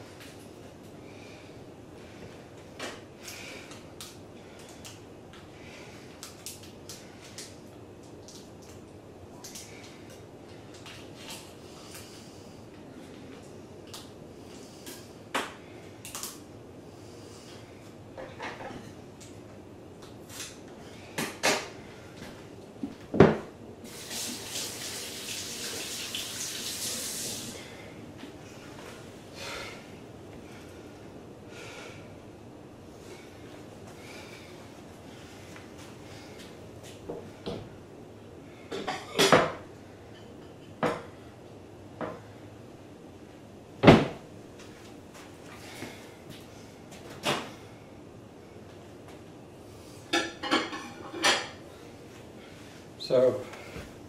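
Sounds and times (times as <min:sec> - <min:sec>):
kitchen knocks and clunks: 0:23.1 - 0:23.5, 0:43.8 - 0:44.2
water running from kitchen tap: 0:23.9 - 0:27.6.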